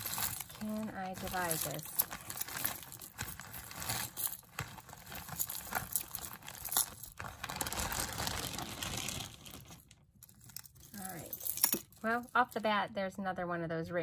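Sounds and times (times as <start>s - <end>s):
jewelry pieces clinking: 0.0s - 8.0s, 10.2s - 12.6s.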